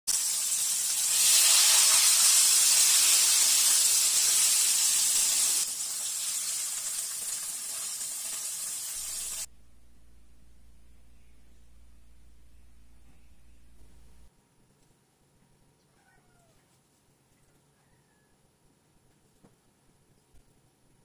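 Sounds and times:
chicken sizzling in hot oil: 0.1 - 9.5.

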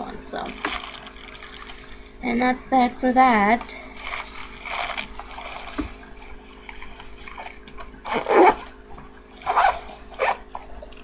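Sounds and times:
plastic pouch crinkling: 0.5 - 1.9, 4.0 - 5.8.

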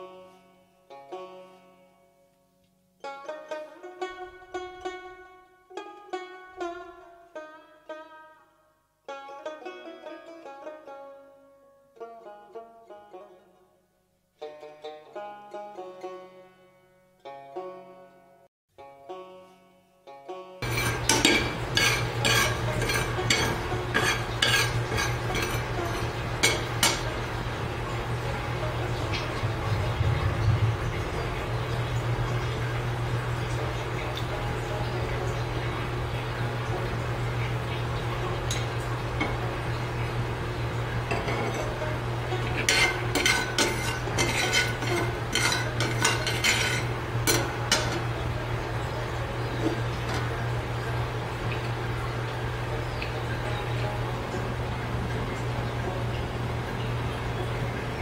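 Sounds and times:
metal spatula scraping pan: 20.6 - 28.4, 41.1 - 50.4
steady low hum: 20.6 - 58.0.

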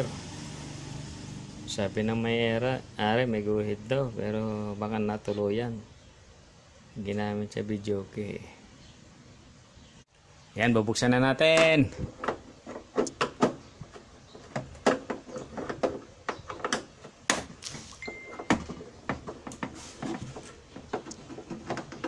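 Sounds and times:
hands handling plastic cabinet: 11.5 - 22.0.

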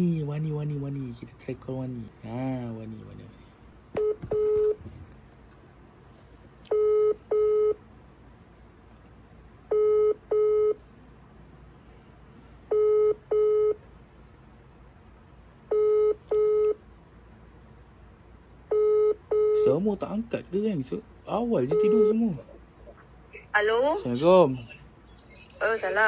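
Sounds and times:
telephone ringback tone: 4.0 - 4.8, 12.7 - 13.8, 21.7 - 22.2.

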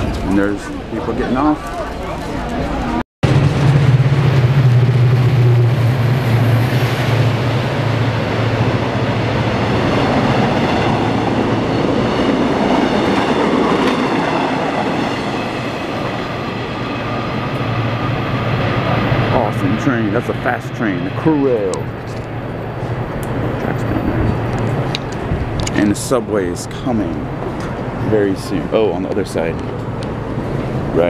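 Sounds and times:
train wheels on rails: 0.0 - 31.0.

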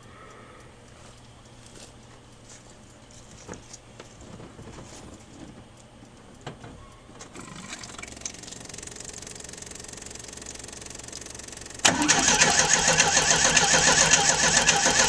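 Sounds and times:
starter motor cranking engine: 7.2 - 15.0.

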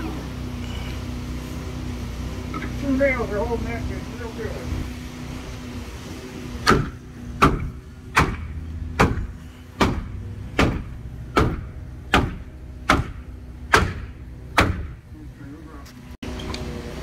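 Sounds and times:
hammer striking wood: 6.6 - 15.0.

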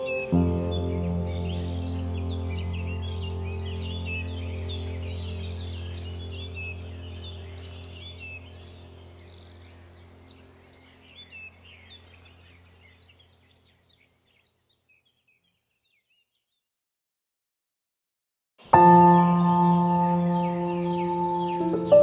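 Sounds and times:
low steady hum: 0.0 - 13.7
small birds chirping: 0.0 - 16.7, 18.6 - 22.0.

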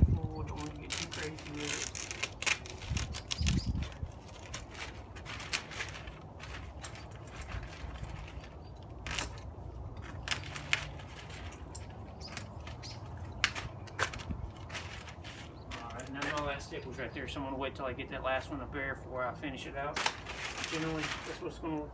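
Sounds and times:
plastic sheet crinkling: 0.6 - 9.4, 10.0 - 16.6, 20.0 - 21.7
utility knife cutting plastic: 0.8 - 6.0.

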